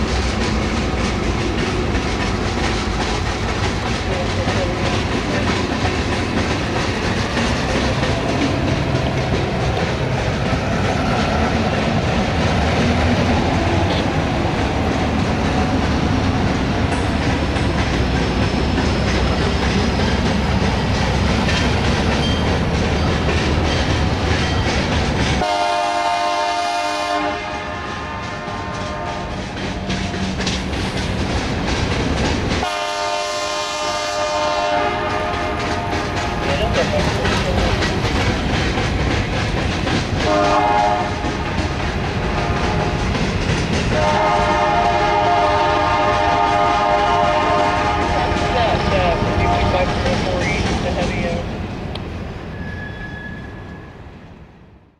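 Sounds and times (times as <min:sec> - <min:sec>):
train wheel rumble and rail clatter: 0:00.0 - 0:54.9
locomotive air horn: 0:25.4 - 0:29.4, 0:32.6 - 0:36.3, 0:40.2 - 0:41.2, 0:43.9 - 0:48.7.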